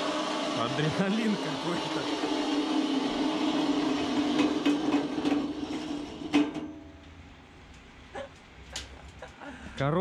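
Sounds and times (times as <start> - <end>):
helicopter turbine engine drone: 0.0 - 3.9.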